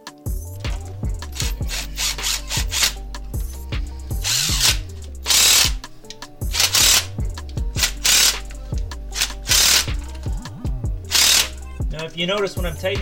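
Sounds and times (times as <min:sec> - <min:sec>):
background music with beat and bass: 0:00.0 - 0:13.0
cordless power tool driving bolts: 0:01.4 - 0:03.0, 0:04.2 - 0:10.0, 0:11.1 - 0:11.6.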